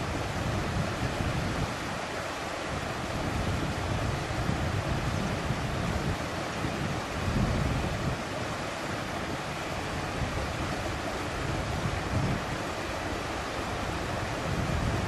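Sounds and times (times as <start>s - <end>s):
river running over stones: 0.0s - 15.0s
wind on microphone: 0.0s - 15.0s.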